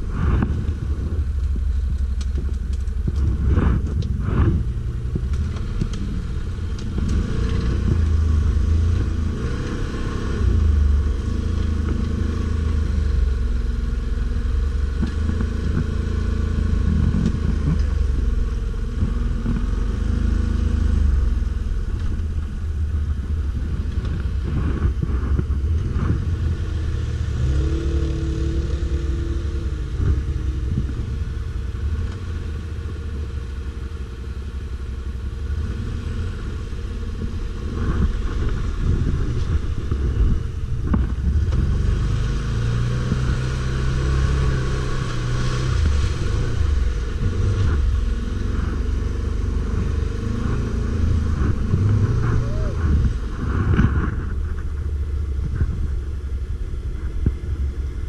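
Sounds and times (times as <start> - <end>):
engine revving: 2.2 - 22.2, 23.1 - 32.9, 35.4 - 56.0.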